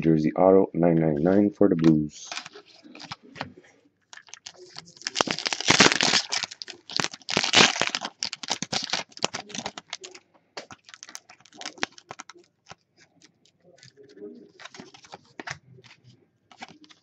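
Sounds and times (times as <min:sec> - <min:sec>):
foil wrapper crinkling and tearing: 0:02.2 - 0:03.2, 0:04.1 - 0:15.6, 0:16.5 - 0:17.0.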